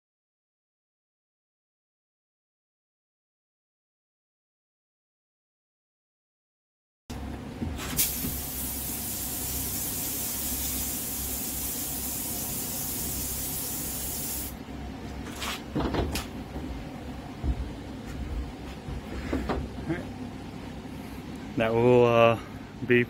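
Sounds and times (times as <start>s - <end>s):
spray gun hissing: 8.0s - 14.6s.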